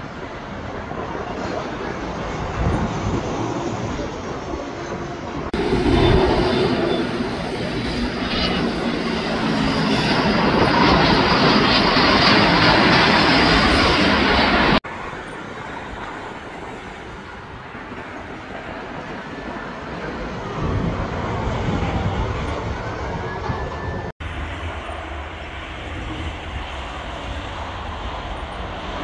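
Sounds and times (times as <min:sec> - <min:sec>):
distant airliner jet rumble: 0:00.0 - 0:29.0
jet engine noise: 0:00.0 - 0:29.0.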